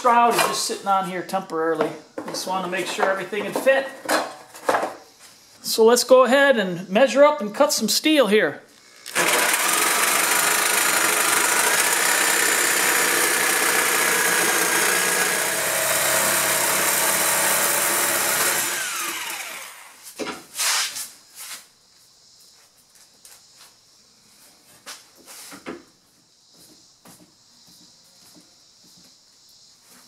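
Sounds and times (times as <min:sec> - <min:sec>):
reciprocating saw cutting steel: 0:08.9 - 0:20.0.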